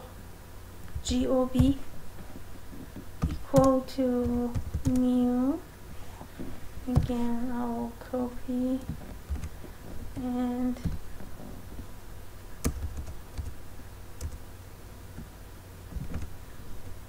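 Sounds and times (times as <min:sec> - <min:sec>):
low steady hum: 0:00.0 - 0:17.0
keyboard and mouse clicks: 0:00.9 - 0:01.8, 0:03.2 - 0:05.1, 0:08.8 - 0:11.0, 0:12.6 - 0:13.6, 0:15.9 - 0:16.3.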